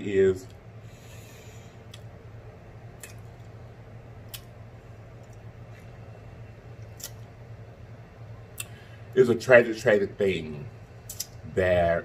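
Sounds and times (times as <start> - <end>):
low hum: 0.0 - 12.0
wet chewing and lip smacks: 2.9 - 3.6, 4.2 - 4.6, 5.2 - 6.0, 6.8 - 7.3.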